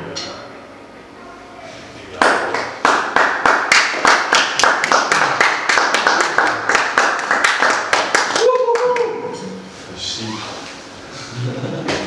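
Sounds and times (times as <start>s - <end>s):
hand claps in steady rhythm: 2.2s - 9.2s.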